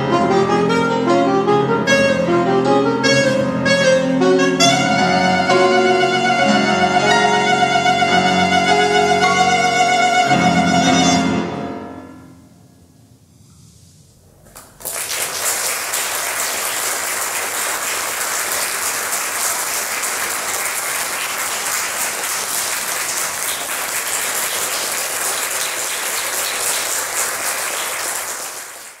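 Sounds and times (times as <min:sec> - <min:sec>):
audience applause: 0:14.5 - 0:29.0.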